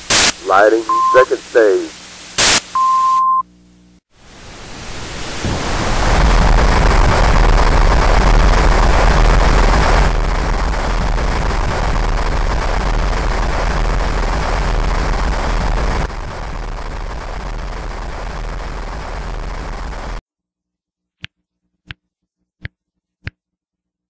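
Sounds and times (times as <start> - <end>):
short beep: 0.9 - 1.3, 2.8 - 3.4
rocket engine firing: 4.8 - 20.2.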